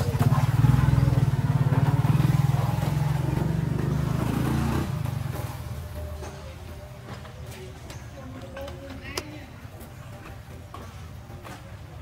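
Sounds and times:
vehicle engine pulsing drone: 0.0 - 7.4.

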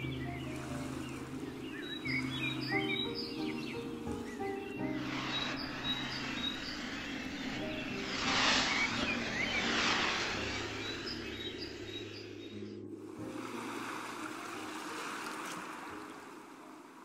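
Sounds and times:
birds chirping: 0.0 - 13.4
sea waves rushing: 0.0 - 17.0
steady hiss: 0.0 - 17.0.

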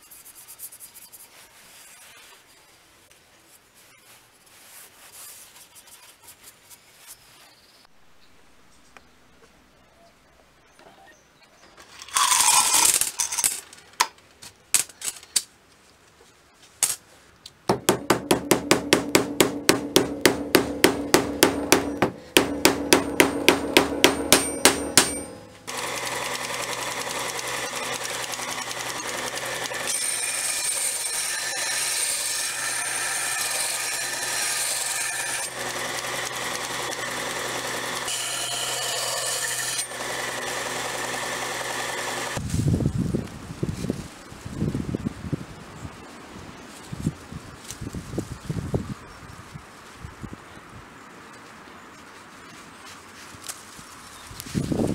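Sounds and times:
belt grinder grinding metal: 12.0 - 13.6, 21.4 - 42.4
ringing metallic strikes: 18.6 - 25.7.

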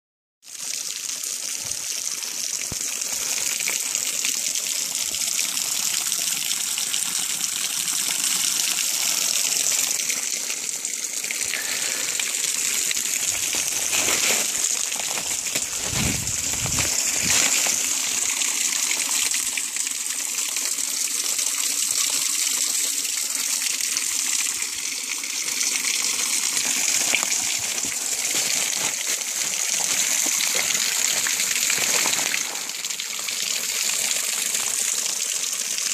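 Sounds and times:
waterfall rushing: 11.4 - 18.3
low bumps: 13.3 - 17.6.

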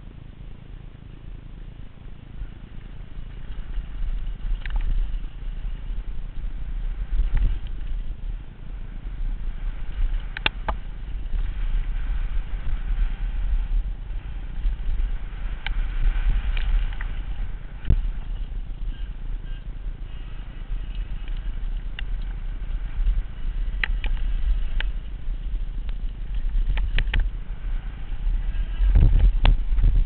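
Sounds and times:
wind rumble on microphone: 0.0 - 30.0
bike rattling and knocking: 2.6 - 30.0.

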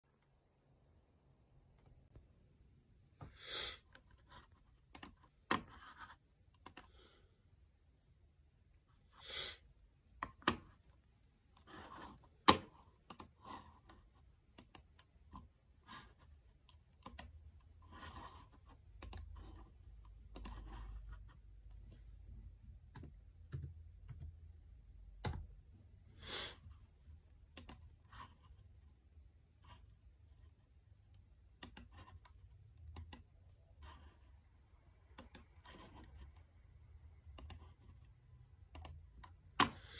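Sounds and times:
computer mouse and keyboard clicks: 4.0 - 7.0, 12.0 - 15.4, 16.6 - 21.8, 27.5 - 28.5, 31.5 - 34.4, 35.1 - 36.5, 37.2 - 38.0, 38.6 - 39.9.

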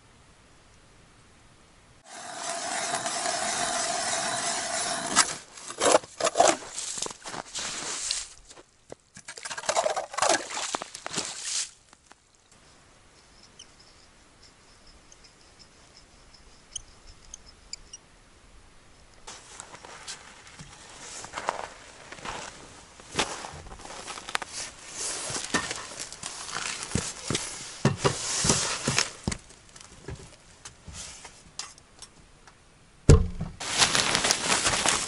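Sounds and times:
ice auger grinding ice: 2.0 - 6.7
high ticks: 12.5 - 18.1
sharp knocks: 33.1 - 33.6.

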